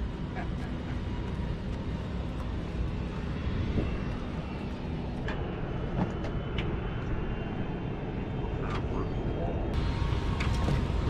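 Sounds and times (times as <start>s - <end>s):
low rumble of flight-line noise: 0.0s - 11.0s.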